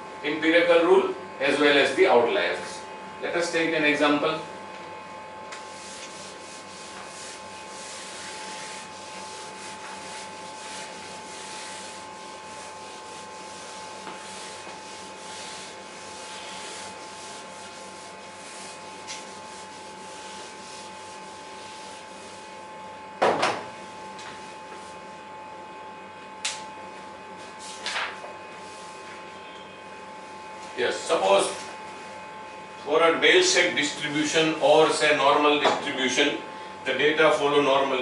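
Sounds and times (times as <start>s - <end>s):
faint electrical hum: 0.0s - 38.0s
eraser wiping whiteboard: 5.6s - 22.6s, 23.8s - 25.1s, 27.4s - 29.2s.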